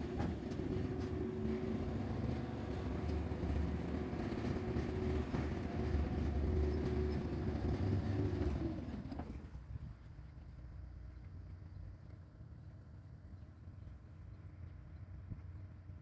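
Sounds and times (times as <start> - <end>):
machinery rumbling and humming: 0.0 - 12.0.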